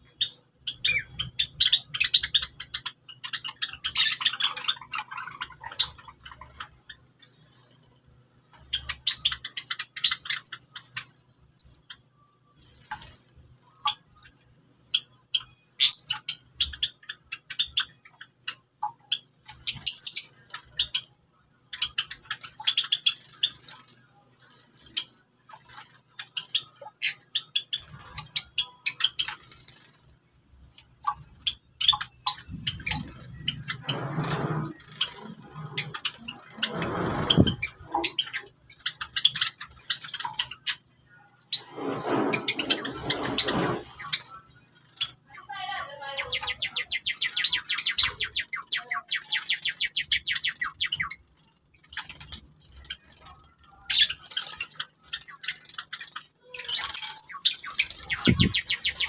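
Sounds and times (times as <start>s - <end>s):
sparrows chirping: 0.0s - 59.0s
wings fluttering: 12.6s - 15.0s, 21.7s - 40.8s, 41.5s - 59.0s.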